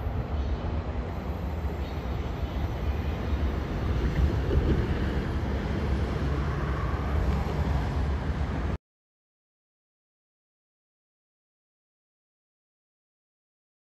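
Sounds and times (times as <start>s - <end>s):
freight train rolling: 0.0s - 8.8s
wind rumbling on microphone: 0.0s - 8.8s.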